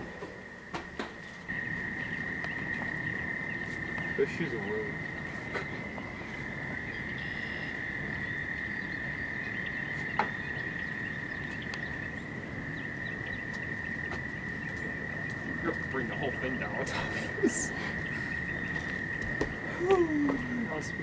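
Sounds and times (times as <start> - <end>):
frogs trilling chorus: 0.0 - 21.0.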